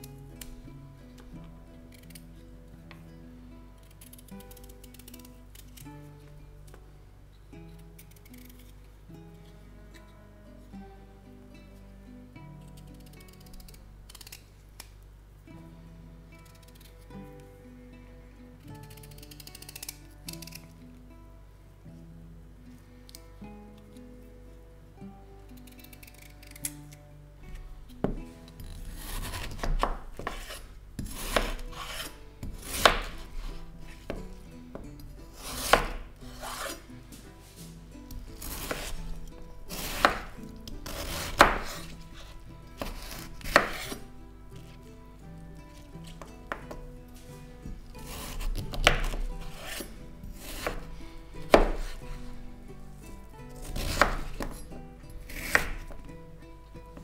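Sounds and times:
soft background music: 0.0s - 57.0s
knife slicing beetroot: 27.5s - 44.8s, 47.6s - 56.1s.

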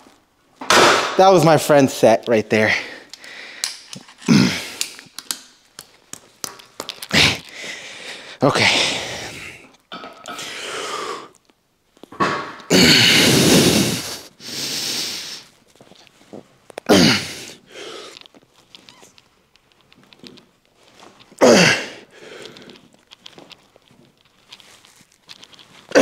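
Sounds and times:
man exhaling and groaning: 4.2s - 5.0s, 7.1s - 7.8s, 12.7s - 15.4s, 16.9s - 18.1s, 21.4s - 22.7s.

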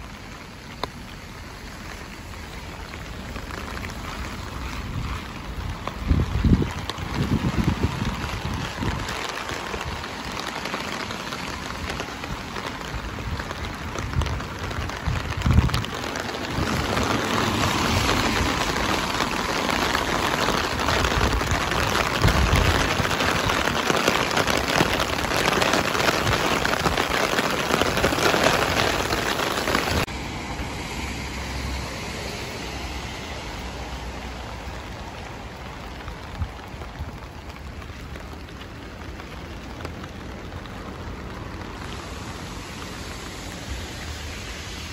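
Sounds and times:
rain on wet pavement: 0.0s - 44.9s.

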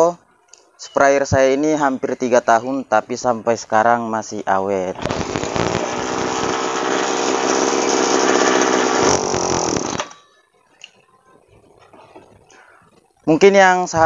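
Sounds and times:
small two-stroke engine running: 5.0s - 10.2s.

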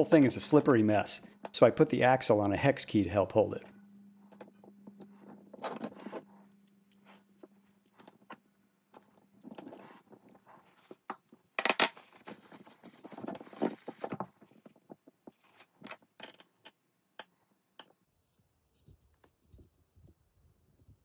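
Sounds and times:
metal parts clicking and clinking: 11.1s - 12.1s.

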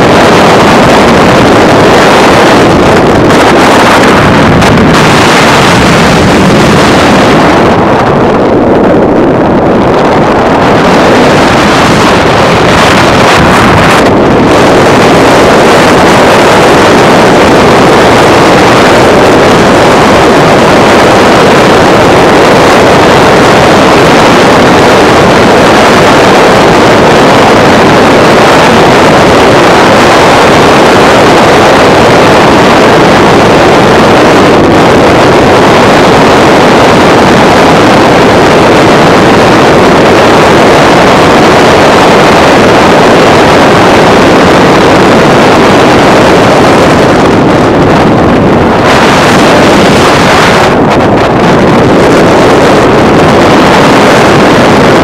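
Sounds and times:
wind and road noise from car: 0.0s - 55.0s.

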